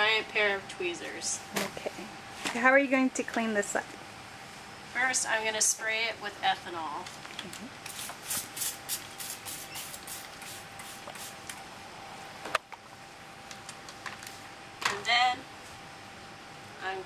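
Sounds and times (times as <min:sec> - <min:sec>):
spray bottle squirts: 0:07.8 - 0:11.4.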